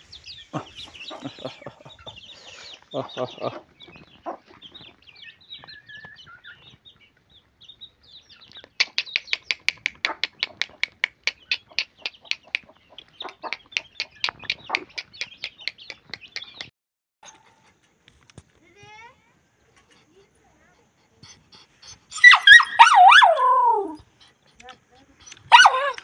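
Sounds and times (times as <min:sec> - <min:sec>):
chicks peeping: 0:00.0 - 0:16.7
hen clucking: 0:00.5 - 0:05.0, 0:08.6 - 0:16.7, 0:19.7 - 0:26.0.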